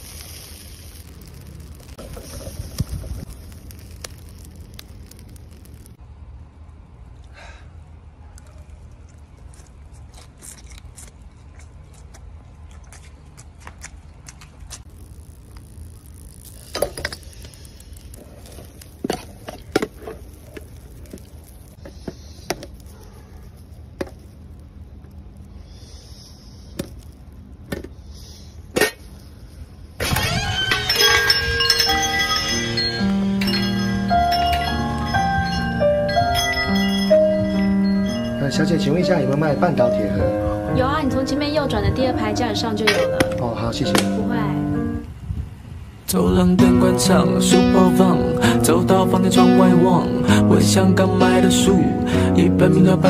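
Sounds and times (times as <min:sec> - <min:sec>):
food crackling and popping on grill: 0:00.0 - 0:06.0, 0:08.4 - 0:44.3
steady low rumble: 0:00.0 - 0:07.2, 0:31.6 - 0:49.2.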